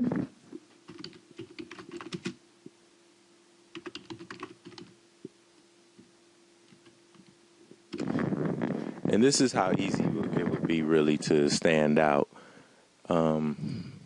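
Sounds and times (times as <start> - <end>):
faint steady hum: 0.0 - 14.0
keyboard typing: 0.9 - 2.4, 3.7 - 4.9.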